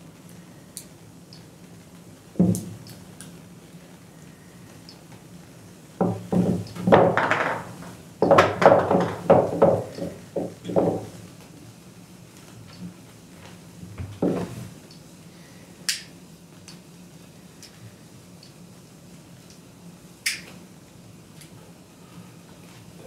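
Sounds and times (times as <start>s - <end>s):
sharp click: 20.2s - 20.5s.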